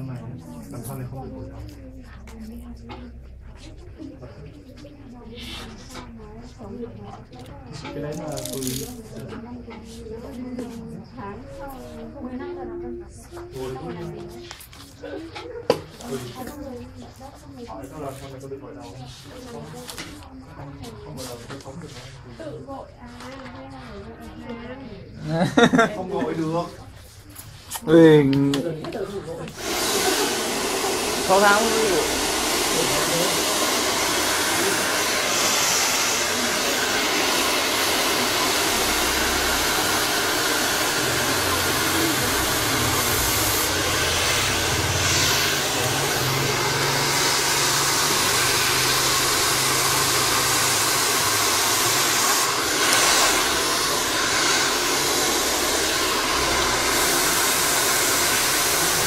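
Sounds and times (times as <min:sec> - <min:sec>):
hair dryer blowing: 0:29.5 - 0:59.0.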